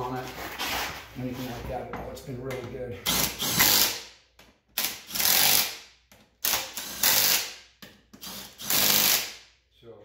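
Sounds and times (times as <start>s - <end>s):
impact wrench hammering: 3.1s - 9.5s.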